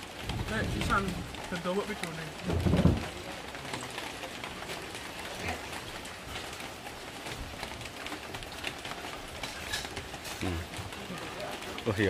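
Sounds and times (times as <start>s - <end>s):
rain pattering: 0.0s - 12.0s.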